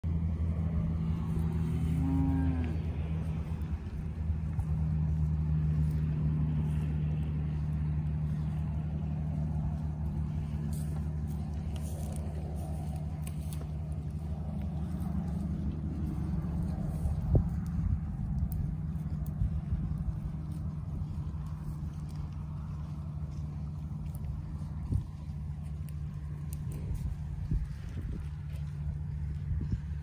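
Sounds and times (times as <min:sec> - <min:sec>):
low motor hum: 0:00.0 - 0:30.0
cow mooing: 0:01.2 - 0:03.6.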